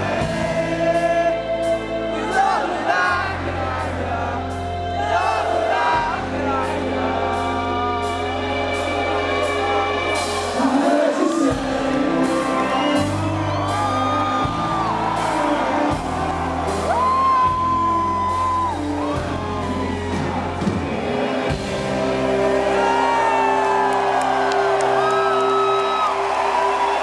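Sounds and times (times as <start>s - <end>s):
live rock band playing: 0.0s - 27.0s
audience whooping and shouting: 11.2s - 27.0s.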